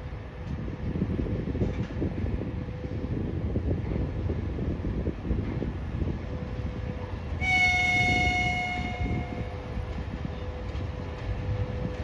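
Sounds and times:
train low rumble: 0.0 - 12.0
locomotive horn blast: 7.4 - 9.6.

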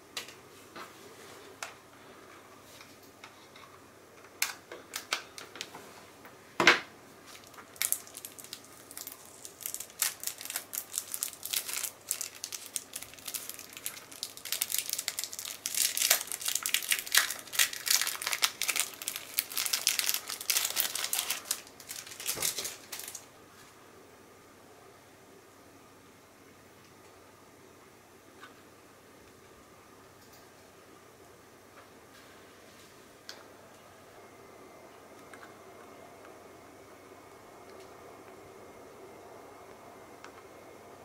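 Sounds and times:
plastic bag crinkling: 7.2 - 23.3.

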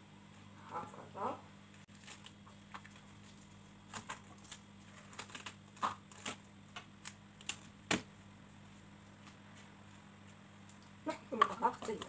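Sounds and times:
cling film crinkling: 1.8 - 7.9.

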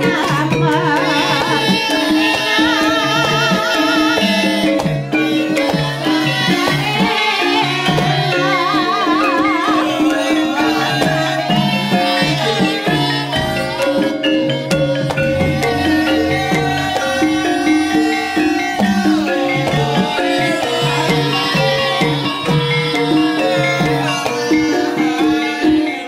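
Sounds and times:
person singing with heavy vibrato: 0.0 - 26.0
ringing metallophone notes: 0.0 - 26.0
hand drum strokes: 9.6 - 25.8.

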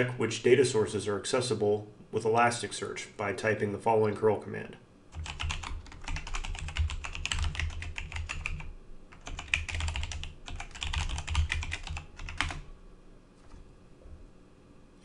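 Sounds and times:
rapid typing on keyboard: 5.1 - 12.6.

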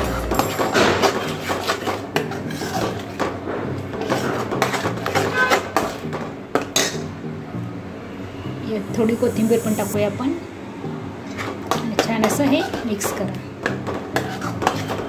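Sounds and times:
background music: 0.0 - 15.0
spoon scraping a pan: 4.0 - 6.1, 14.2 - 15.0.

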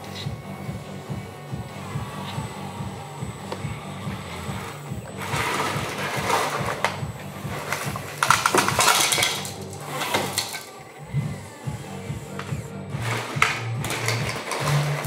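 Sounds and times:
loader bucket digging loose pieces: 5.2 - 10.8
pieces clinking and rattling: 8.2 - 10.8.

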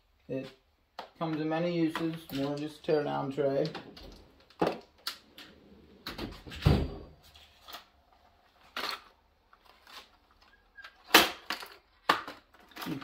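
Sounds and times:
clicks and knocks of small items: 1.0 - 2.9, 7.2 - 13.0.

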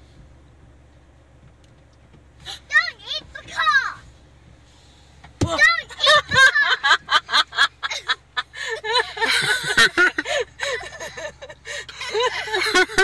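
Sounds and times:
people laughing: 5.9 - 13.0.

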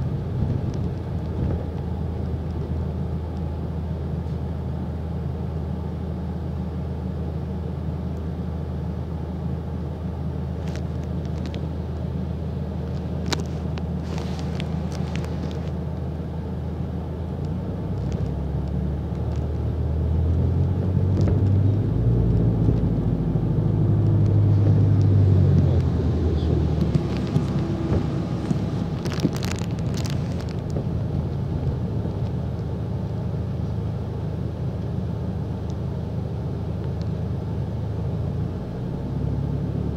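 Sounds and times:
diesel bus engine: 0.0 - 39.9.

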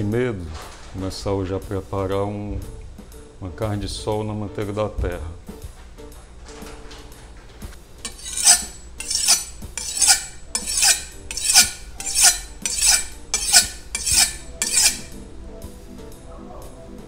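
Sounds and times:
knife being sharpened: 8.1 - 15.2.

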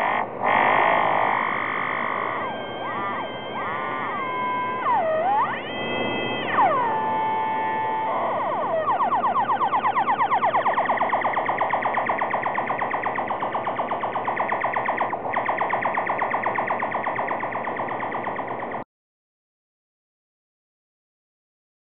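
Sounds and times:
synthesizer drone with fast wobble: 0.0 - 18.8.

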